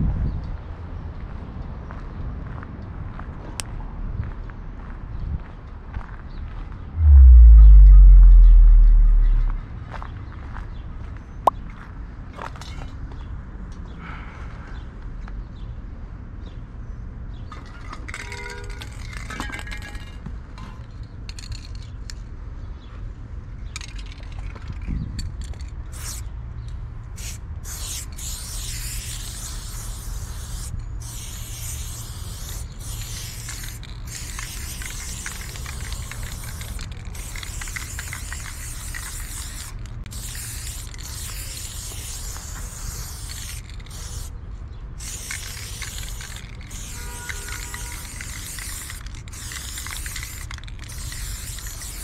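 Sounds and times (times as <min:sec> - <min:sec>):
spray paint can hissing: 0:25.9 - 0:26.2, 0:27.2 - 0:44.3, 0:45.0 - 0:52.0.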